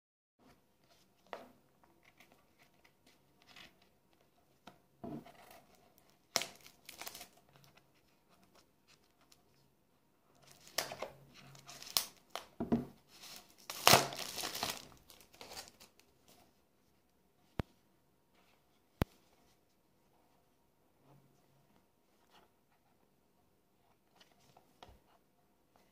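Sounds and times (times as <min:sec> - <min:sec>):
packaging crinkling and tearing: 0:06.2 - 0:07.4, 0:11.6 - 0:12.5, 0:13.2 - 0:16.1.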